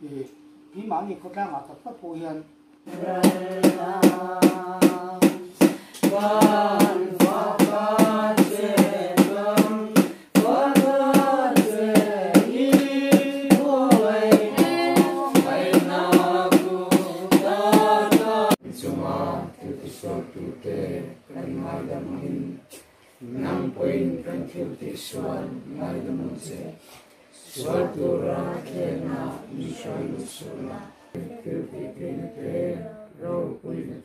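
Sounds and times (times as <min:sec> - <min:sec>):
group singing a hymn: 0:02.8 - 0:34.0
sharp percussive beat: 0:02.9 - 0:18.6.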